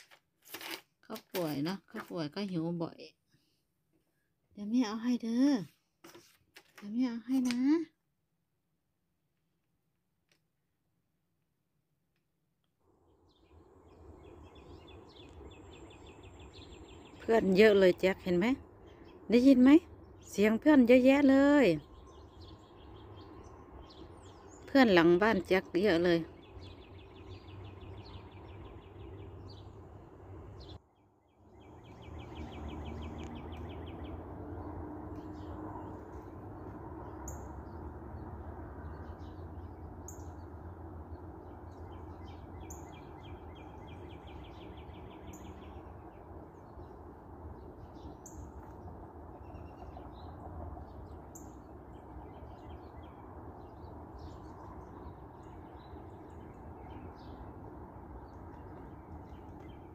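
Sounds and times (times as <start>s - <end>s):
low steady background rumble: 12.8s - 59.9s
songbird rapid trill: 13.3s - 34.2s, 41.3s - 59.9s.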